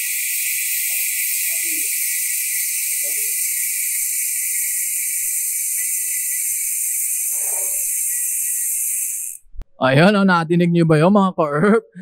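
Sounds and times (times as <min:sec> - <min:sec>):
bicycle hub ratchet buzzing: 0:00.0 - 0:09.5.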